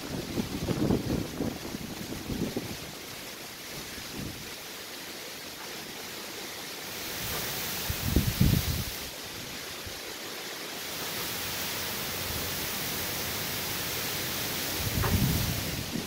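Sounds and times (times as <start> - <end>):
wind gust buffeting microphone: 0.0 - 3.0, 7.2 - 9.0, 14.8 - 16.0
heavy rain hissing: 0.0 - 16.0.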